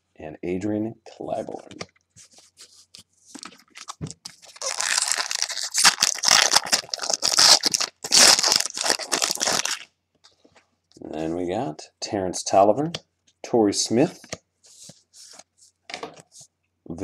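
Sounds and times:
foil wrapper crinkling and tearing: 3.4s - 9.9s.

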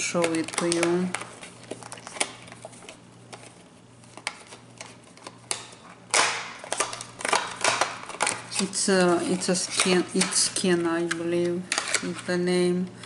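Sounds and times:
packaging rustle: 0.1s - 9.9s.

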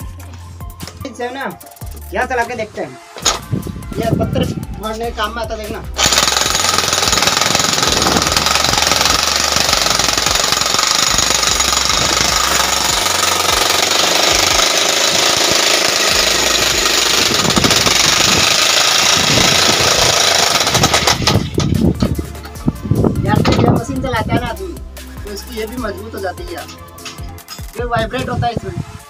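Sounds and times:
demolition hammer chiselling rock: 6.0s - 21.9s.

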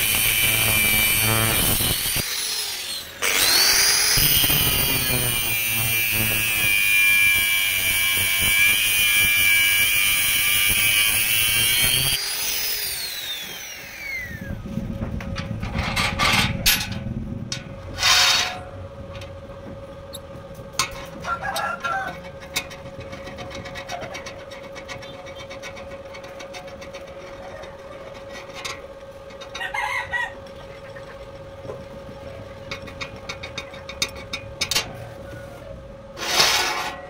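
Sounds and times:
angle grinder cutting steel: 0.0s - 14.5s, 18.0s - 18.7s.

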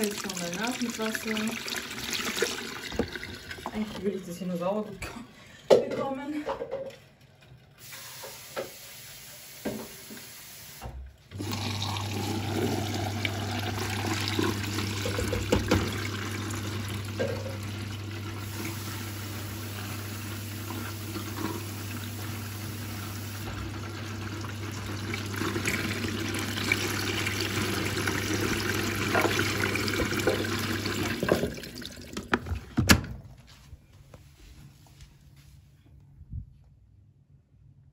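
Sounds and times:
water rushing into washing machine: 0.0s - 4.3s, 7.4s - 32.9s
inlet valve humming: 9.6s - 32.4s.

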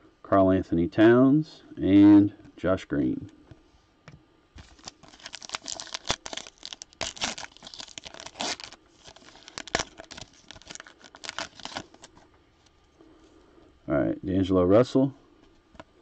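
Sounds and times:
wrapper tearing with crackling rips: 4.6s - 12.2s.

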